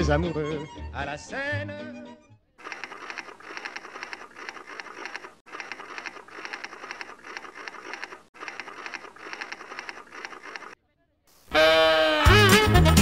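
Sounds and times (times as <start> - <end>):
typewriter keys clacking: 2.6 - 10.8.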